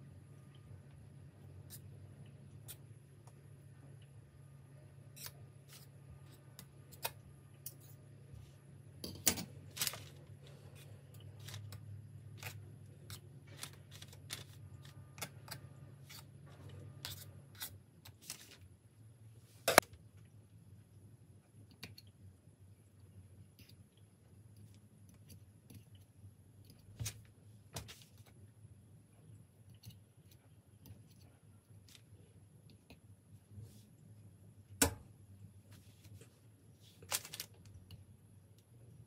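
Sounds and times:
low steady hum: 0.0 - 39.0.

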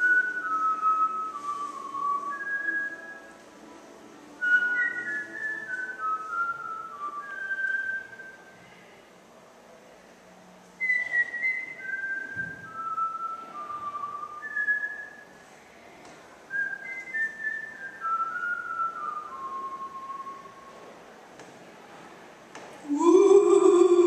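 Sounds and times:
person whistling a tune: 0.0 - 3.3, 4.4 - 8.5, 10.8 - 15.3, 16.5 - 20.7.

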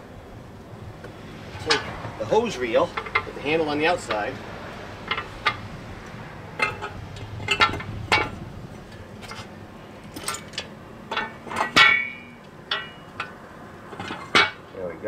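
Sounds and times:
metal hose reel clinking: 1.6 - 4.4, 5.0 - 5.7, 6.6 - 14.6.

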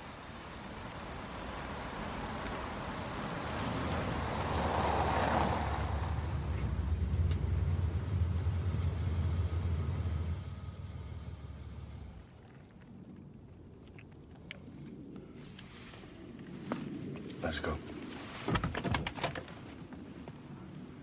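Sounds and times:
road noise: 0.0 - 21.0
car engine running: 5.8 - 12.4.

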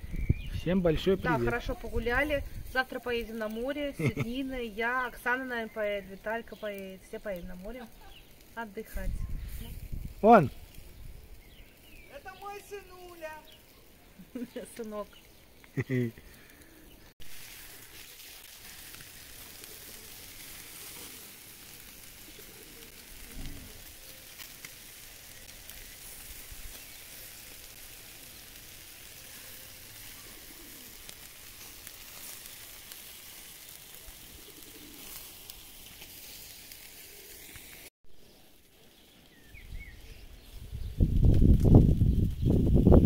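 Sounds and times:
meat sizzling on a grill: 0.0 - 43.0
bird cooing: 22.2 - 24.1, 29.3 - 31.1, 33.9 - 35.3.

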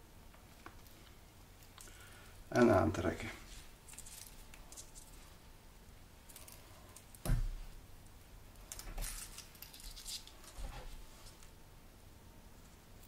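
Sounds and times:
fishing line rustling and scratching: 3.4 - 5.4, 8.7 - 11.5.

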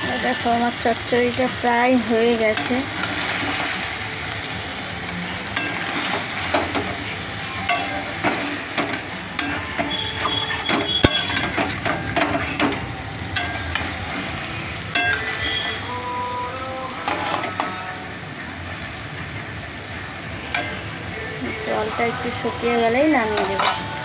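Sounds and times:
food sizzling in a metal pan: 0.0 - 24.0
spatula scraping and knocking pan: 5.5 - 14.2.

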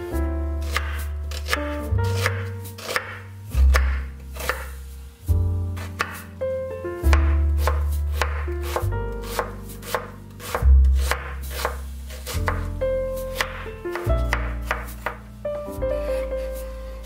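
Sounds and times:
background music: 0.0 - 17.0
knife chopping onion on wooden board: 0.6 - 4.8, 5.8 - 6.3, 7.1 - 15.2.

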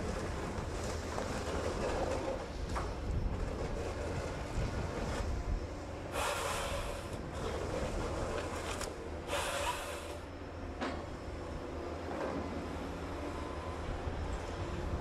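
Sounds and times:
engine droning: 0.0 - 15.0
harvester head processing bursts: 6.1 - 7.3, 8.8 - 10.3.

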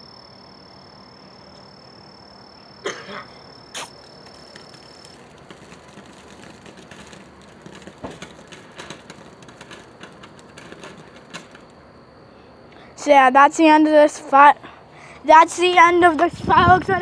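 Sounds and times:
crackling pops: 3.7 - 11.8
firework spraying sparks: 3.7 - 11.9.

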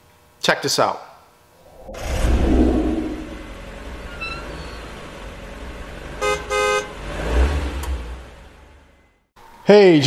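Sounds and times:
whoosh: 1.6 - 4.0
steady low rumble: 1.6 - 4.1
car horn honking: 6.2 - 7.0.

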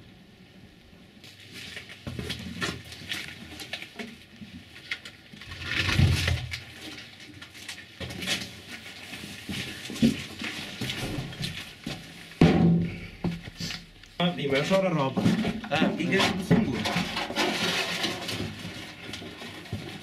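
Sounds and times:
heavy thump: 10.9 - 14.0.

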